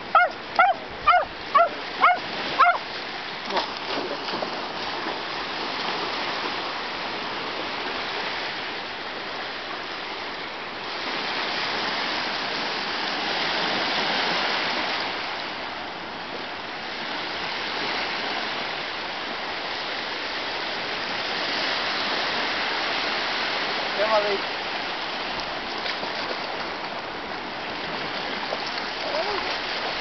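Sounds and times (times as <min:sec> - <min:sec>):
sea waves washing up beach: 0:00.0 - 0:30.0.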